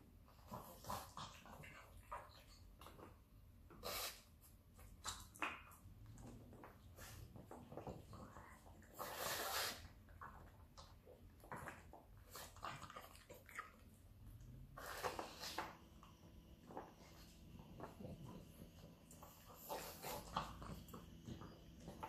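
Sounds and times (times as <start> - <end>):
dog snuffling and snorting: 3.7 - 4.4, 7.0 - 10.0, 14.7 - 15.8, 16.9 - 22.0.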